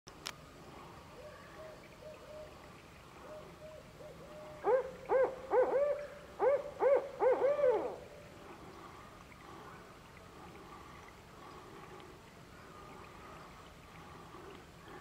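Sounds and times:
owl hooting: 3.2 - 8.1.

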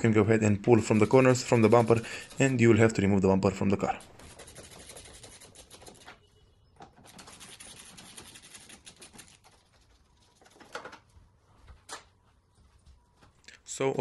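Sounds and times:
hand ratchet clicking rapidly: 0.8 - 2.8.

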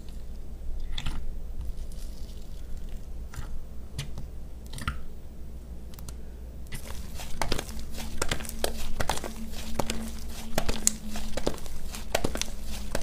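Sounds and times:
slime squishing: 0.0 - 5.0, 6.0 - 13.0
sticky popping of slime: 6.8 - 13.0.

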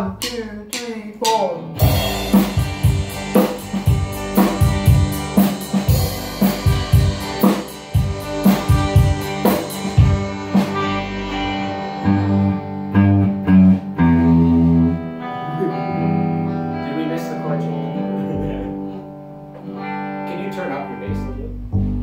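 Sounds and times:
rock band playing live: 1.3 - 22.0
cymbals: 1.8 - 11.9
held low bass notes: 1.8 - 19.0, 21.0 - 22.0.

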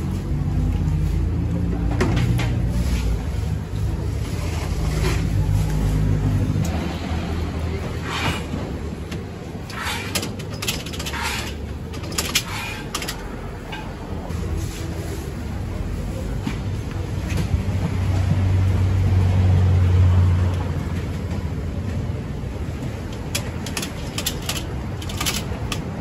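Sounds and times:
low engine-like rumble: 0.0 - 26.0
metal clinks and scrapes: 9.6 - 14.0, 23.2 - 26.0.

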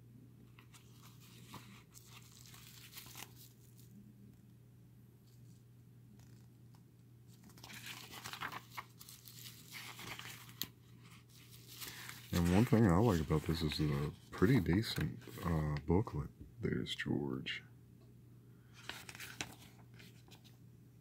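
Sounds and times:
paper pages rustling and crinkling: 0.5 - 3.9, 7.3 - 15.9, 18.7 - 20.6.

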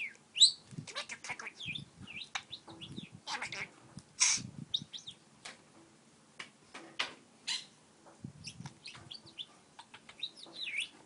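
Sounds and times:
high bird chirps: 0.0 - 3.6, 4.2 - 5.2, 8.4 - 11.0
budgerigar chattering: 0.4 - 5.2, 7.5 - 7.7, 8.4 - 11.0.

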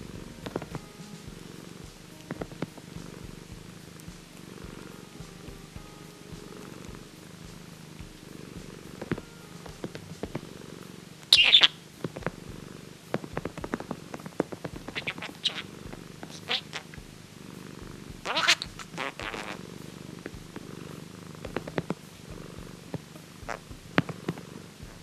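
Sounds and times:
cat purring: 0.0 - 25.0
budgerigar chirp: 11.3 - 11.8, 18.2 - 19.6.

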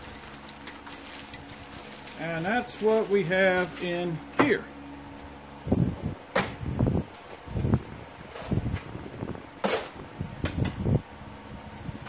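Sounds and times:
handling rustles and knocks: 0.0 - 4.6
low background hum: 0.0 - 12.0.

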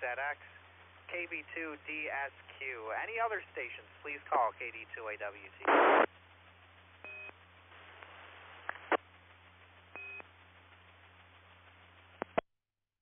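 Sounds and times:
low hum: 0.0 - 12.4
radio hiss: 0.0 - 12.4.

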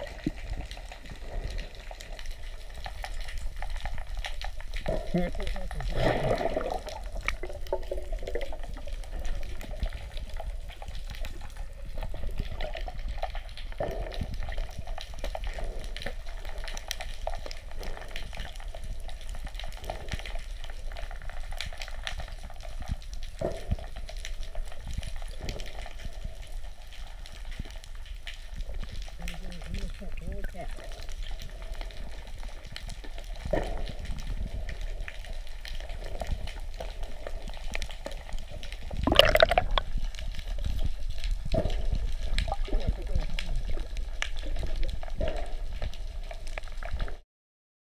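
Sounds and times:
muffled underwater water rush: 0.0 - 47.2
underwater crackles and clicks: 0.0 - 47.2
bubbles bursting: 4.9 - 8.9, 38.9 - 40.0.

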